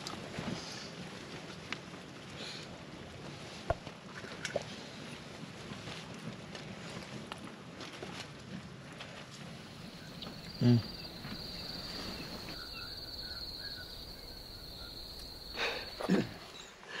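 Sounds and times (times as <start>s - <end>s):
cricket trilling: 9.6s - 16.7s.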